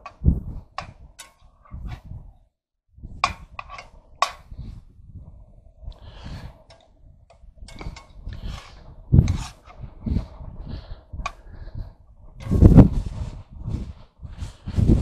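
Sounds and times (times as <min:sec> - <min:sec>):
wind rumble on microphone: 0:00.0 - 0:15.0
metal spatula scraping frying pan: 0:00.8 - 0:02.1, 0:03.2 - 0:04.6, 0:07.6 - 0:09.8.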